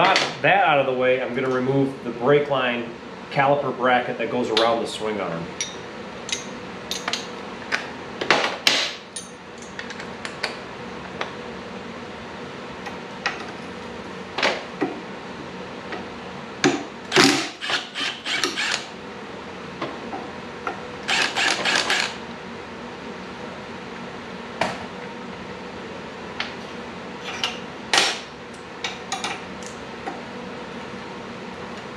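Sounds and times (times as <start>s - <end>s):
cordless power tool spinning bolts: 17.1s - 18.9s, 21.0s - 22.2s.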